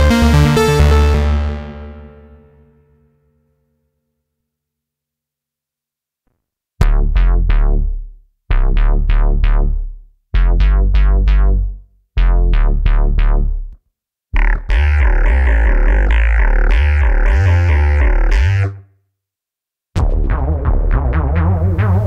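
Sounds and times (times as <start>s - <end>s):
continuous synthesizer bass: 0.0s - 2.8s, 6.8s - 13.8s, 14.4s - 18.8s, 20.0s - 22.0s
deep synthesizer bass notes: 0.0s - 2.8s, 6.8s - 13.8s, 14.4s - 18.8s, 20.0s - 22.0s.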